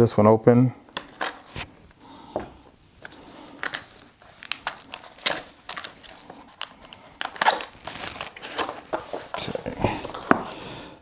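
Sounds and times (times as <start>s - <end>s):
cardboard scraping and crinkling: 3.1s - 10.6s.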